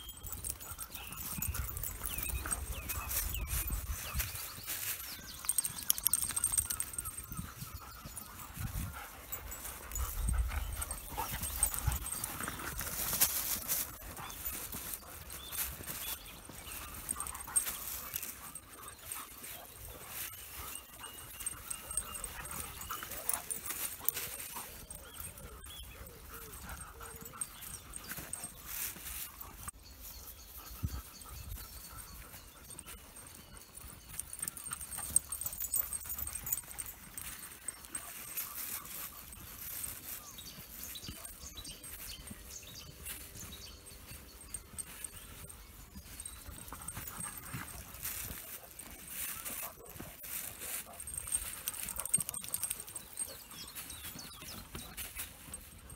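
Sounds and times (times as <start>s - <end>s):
small birds chirping: 0.0s - 55.9s
footsteps on grass: 8.0s - 25.4s, 33.0s - 55.9s.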